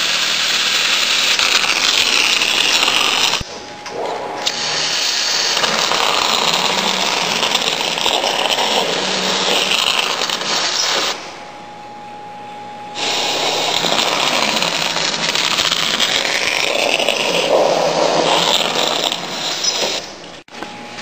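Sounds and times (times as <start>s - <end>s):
water jet hissing: 0.0s - 3.4s, 4.3s - 11.3s, 13.0s - 20.2s.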